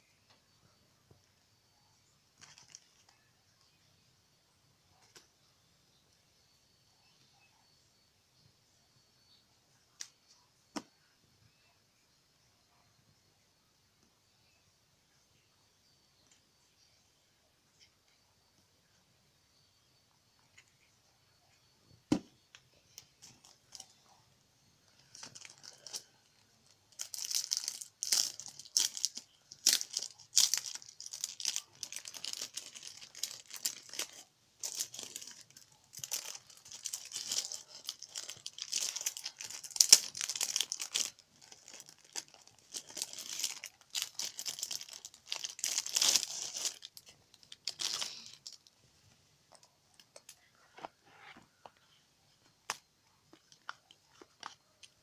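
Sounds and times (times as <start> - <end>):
plastic and cardboard crinkling: 2.4 - 3.2, 24.9 - 48.7.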